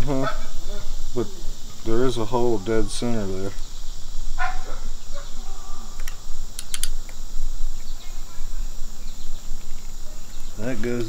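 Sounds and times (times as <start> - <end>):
crickets chirring: 0.0 - 11.0
crossbow parts clicking: 6.0 - 7.2.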